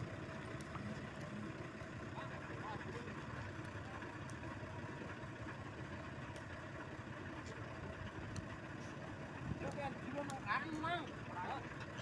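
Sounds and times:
truck engine idling: 0.0 - 12.0
faint clicks: 3.6 - 4.4, 6.3 - 6.6, 8.3 - 8.5.

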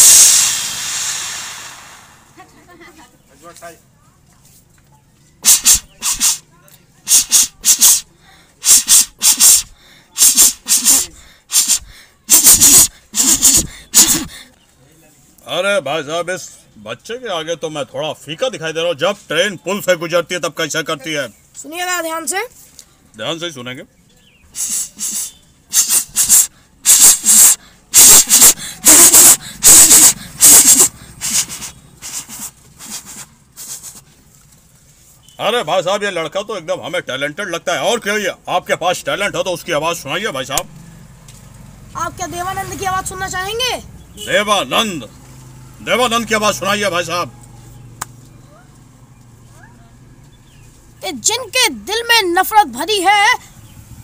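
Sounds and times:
boy imitating train hisses: 0.0 - 2.4, 5.4 - 6.5, 7.1 - 14.5, 24.5 - 34.0.

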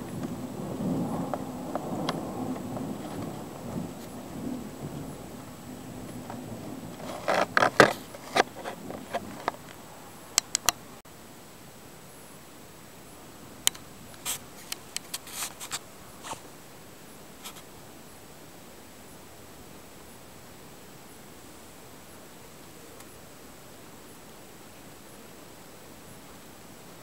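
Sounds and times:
low rumbling noise: 0.0 - 11.0
sharp clicks and scrapes: 6.1 - 9.8, 13.7 - 16.4.

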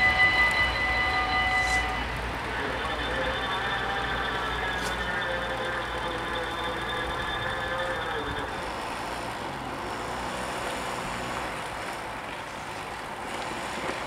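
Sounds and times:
level crossing warning bells: 0.0 - 11.6
passing traffic hiss: 0.0 - 14.0.

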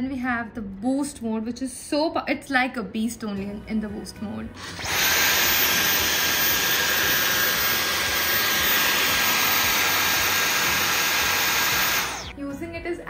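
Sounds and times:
vacuum cleaner running: 4.6 - 12.4.

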